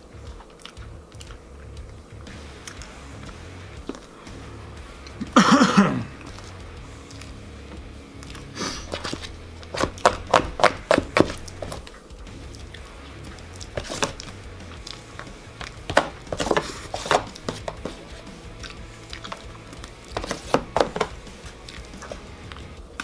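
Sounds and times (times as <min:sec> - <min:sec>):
background music: 0:00.0 - 0:23.0
person chewing: 0:00.3 - 0:02.0, 0:18.5 - 0:20.4.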